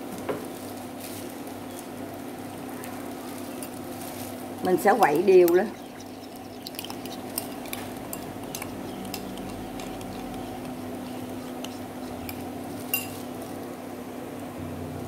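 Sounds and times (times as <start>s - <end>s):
steady low hum: 2.0s - 15.0s
metal spoon clinking on bowl: 6.3s - 13.3s.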